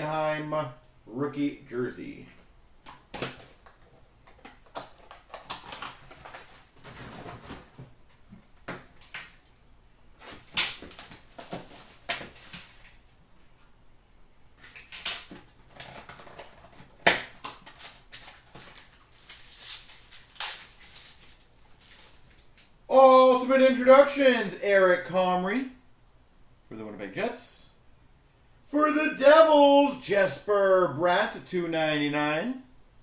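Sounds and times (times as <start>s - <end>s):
cardboard boxes being handled: 5.2s - 8.0s.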